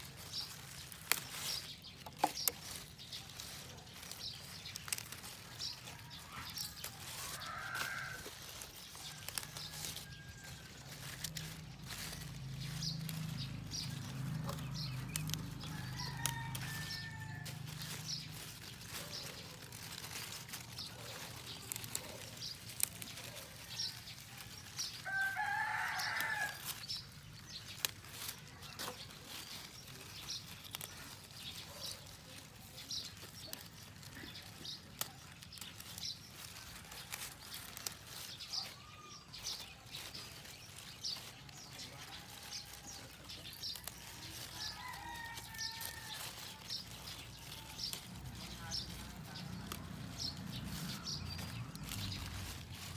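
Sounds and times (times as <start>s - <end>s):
rooster crowing: 15.6s - 17.7s, 25.0s - 26.7s, 44.4s - 46.6s.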